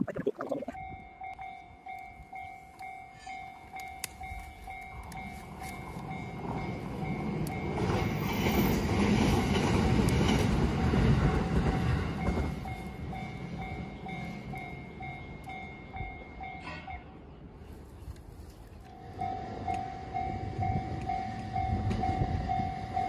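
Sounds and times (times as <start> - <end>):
level crossing bell ringing: 0.8 - 7.8
train rumble and clatter: 0.8 - 23.0.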